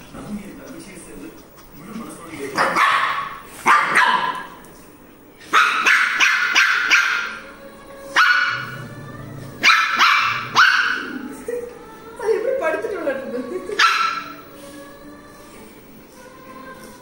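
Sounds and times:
small dog yapping: 0:02.6 - 0:04.5, 0:05.5 - 0:07.3, 0:09.6 - 0:11.1.

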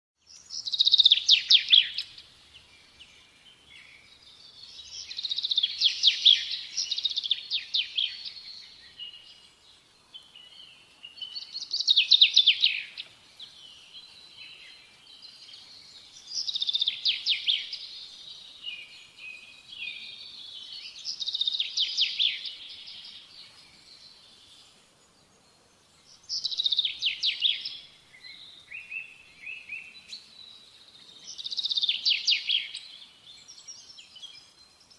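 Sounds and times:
soft bird twittering: 0:00.2 - 0:34.9
songbird singing: 0:00.2 - 0:34.9.

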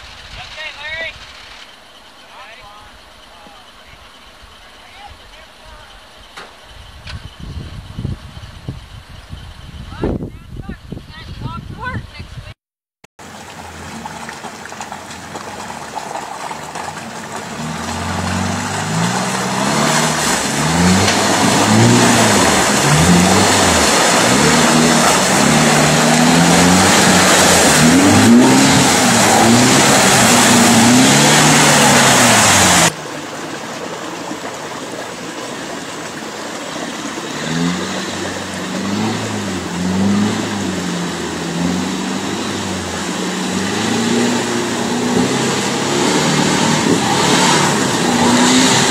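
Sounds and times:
engine revving: 0:16.7 - 0:33.0, 0:37.0 - 0:48.9
loud rushing noise: 0:19.9 - 0:33.0.

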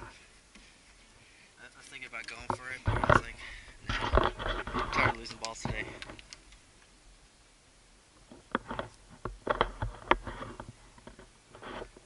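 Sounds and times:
sharp metallic clicks: 0:05.0 - 0:06.9.

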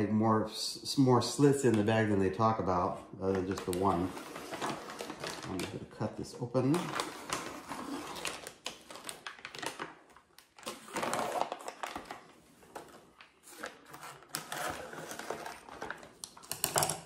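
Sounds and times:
plastic crinkling: 0:03.3 - 0:16.8.

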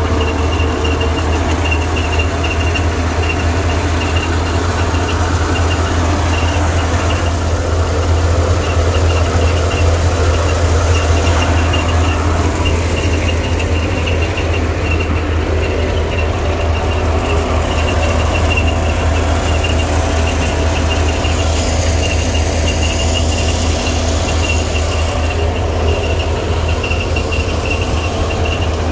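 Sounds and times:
engine drone: 0:00.0 - 0:28.9
high machine whine: 0:00.0 - 0:28.9
thresher running noise: 0:00.0 - 0:28.9.

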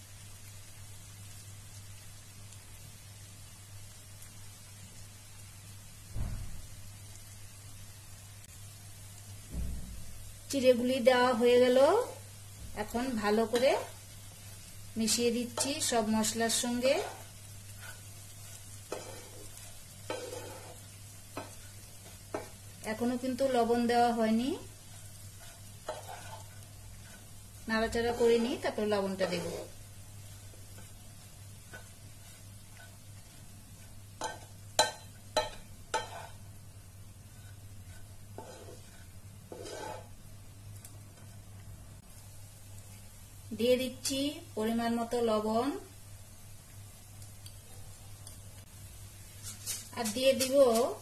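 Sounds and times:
frying sizzle: 0:00.0 - 0:51.0
soft rustle: 0:16.6 - 0:20.9, 0:24.7 - 0:34.1, 0:37.2 - 0:40.2, 0:49.2 - 0:51.0
spatula striking pan: 0:18.8 - 0:22.6, 0:25.4 - 0:27.3, 0:34.2 - 0:36.4.

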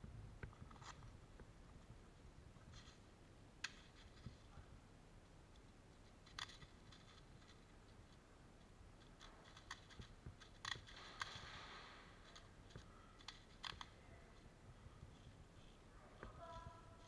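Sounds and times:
soft hiss: 0:00.0 - 0:17.0
sharp clicks: 0:09.0 - 0:14.0.

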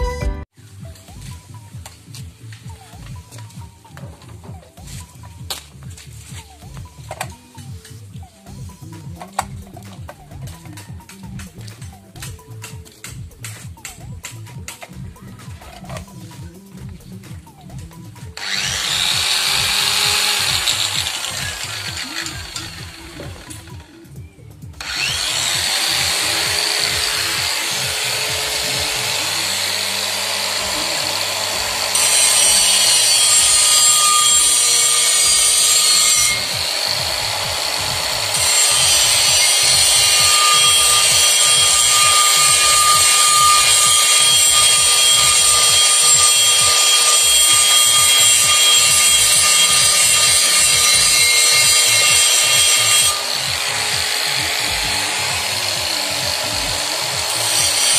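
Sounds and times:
grinder grinding metal drum: 0:18.1 - 0:24.0, 0:24.8 - 0:57.9
angle grinder whining: 0:18.1 - 0:24.1, 0:24.8 - 0:57.9.

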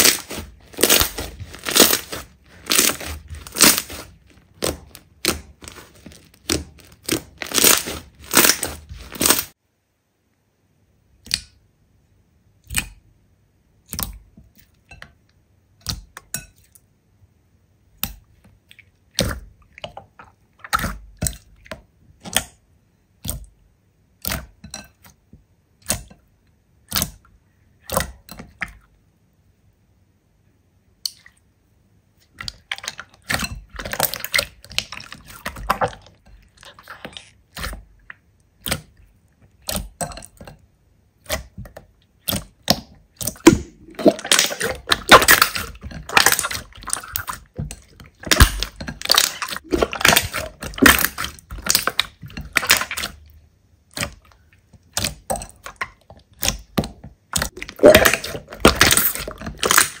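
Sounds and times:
slime crackling and popping: 0:00.0 - 0:09.6, 0:42.2 - 0:53.2, 0:55.0 - 1:00.0.

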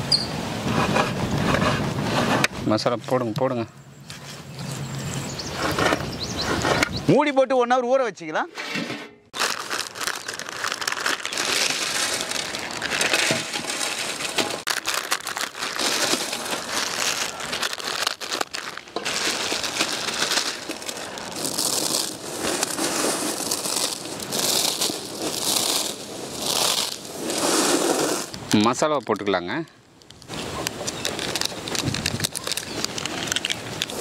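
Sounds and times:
dry noodles crushed by hand: 0:09.4 - 0:27.4.

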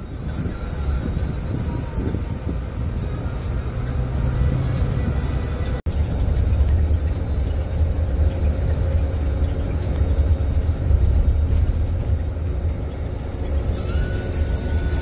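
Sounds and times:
bus engine rumbling: 0:00.0 - 0:15.0
road noise: 0:00.0 - 0:15.0.

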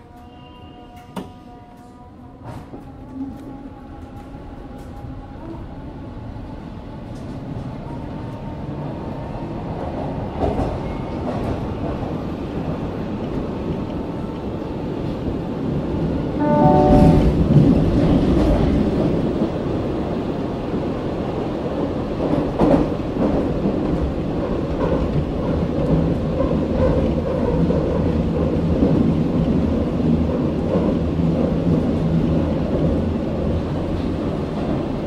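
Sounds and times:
train equipment humming: 0:16.3 - 0:20.4.

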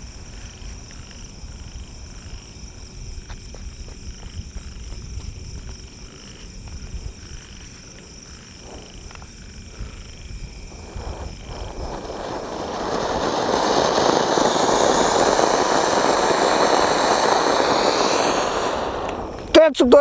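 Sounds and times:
fountain firework hissing: 0:09.7 - 0:20.0
fuse crackling: 0:10.5 - 0:20.0.

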